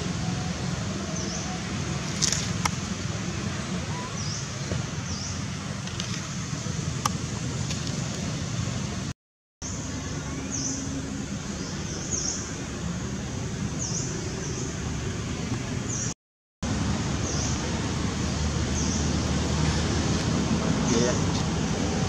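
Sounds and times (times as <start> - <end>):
distant traffic rumble: 0.0 - 22.0
small birds chirping: 0.2 - 2.5, 3.3 - 6.3, 9.6 - 16.2, 17.2 - 19.3.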